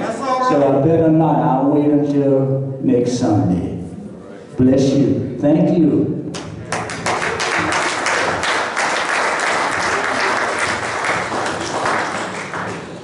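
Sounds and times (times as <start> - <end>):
crowd applauding: 6.7 - 13.0.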